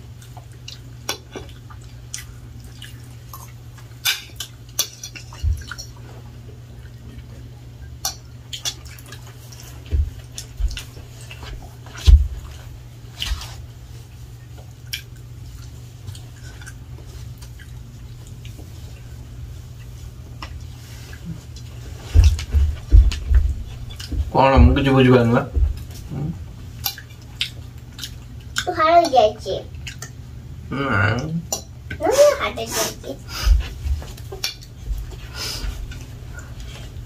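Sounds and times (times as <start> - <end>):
steady low hum: 0.0 - 37.0
low thumps: 22.1 - 26.4.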